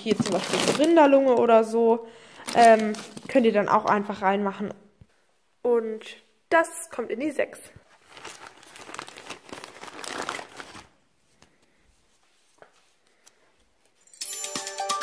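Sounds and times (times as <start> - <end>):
plastic bag crinkling: 0.0 - 4.1, 7.9 - 11.0
music: 14.1 - 15.0.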